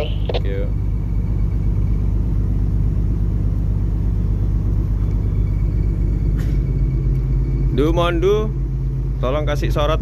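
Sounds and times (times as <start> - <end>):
ship engines rumbling: 0.0 - 10.0.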